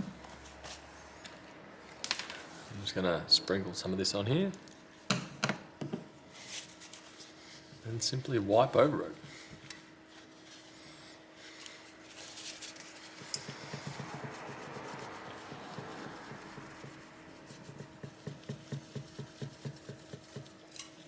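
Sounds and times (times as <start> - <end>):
tissue rubbing on metal: 6.3 - 7.7, 10.0 - 18.2.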